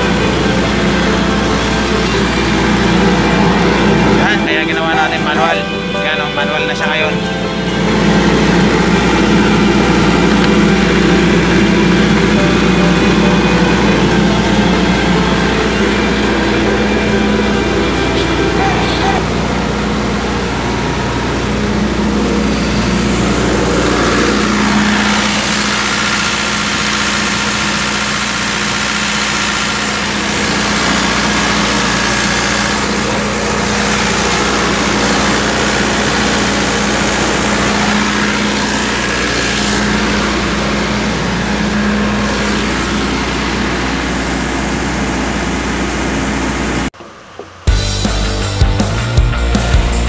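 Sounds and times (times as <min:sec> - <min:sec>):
faint high whine: 0:00.0 - 0:47.8
generator engine drone: 0:00.0 - 0:50.0.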